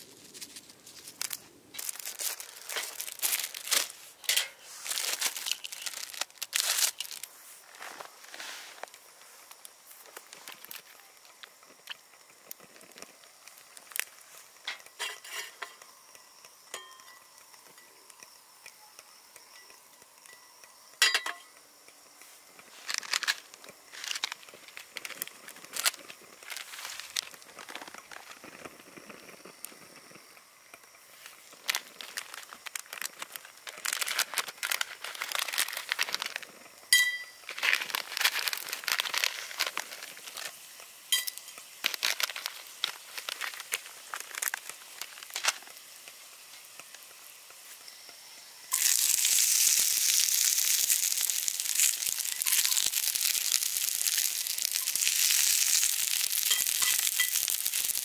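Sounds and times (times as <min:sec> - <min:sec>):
crinkling and rustling: 0:00.0 - 0:15.8, 0:22.2 - 0:47.8, 0:48.7 - 0:58.0
sharp ringing clinks: 0:16.7 - 0:18.0, 0:36.9 - 0:37.5.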